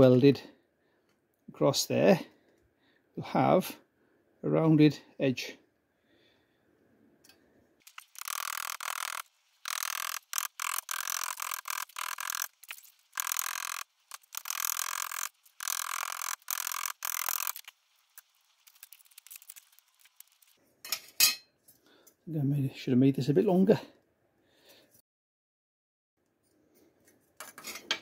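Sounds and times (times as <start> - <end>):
abrasive tool rasping on steel: 8.1 - 17.7.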